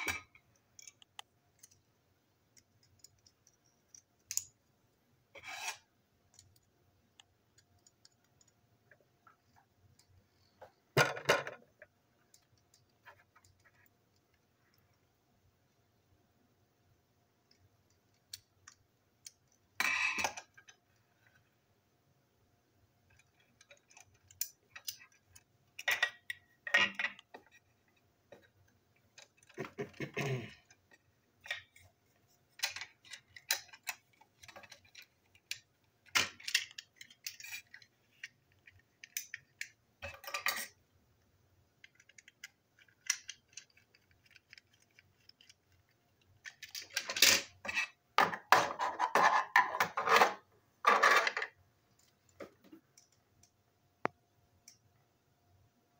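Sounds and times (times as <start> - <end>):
plastic toy parts clicking and rattling: 0.0 - 1.9, 2.5 - 4.6, 17.4 - 21.5, 23.1 - 31.9, 32.5 - 40.8, 41.6 - 51.6.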